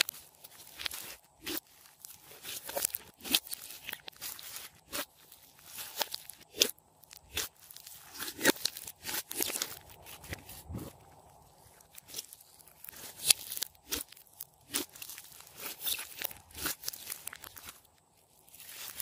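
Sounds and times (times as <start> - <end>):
slime squeezed wet crackles: 11.8 - 19.0.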